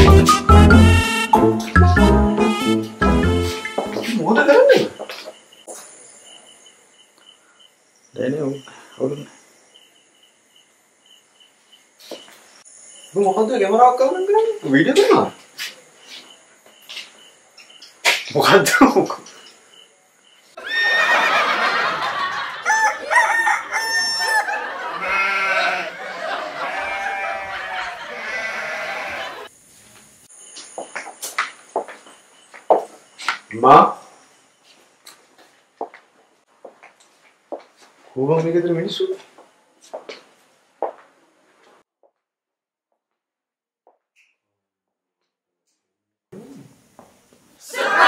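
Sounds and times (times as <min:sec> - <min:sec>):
crickets chirping: 0:03.2 - 0:41.4
roosters crowing: 0:20.6 - 0:29.5.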